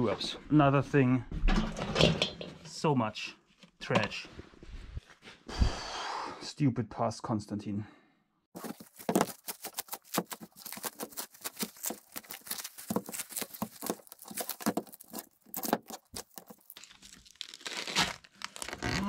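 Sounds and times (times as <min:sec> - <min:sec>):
cling film crinkling and tearing: 0:08.6 - 0:19.0.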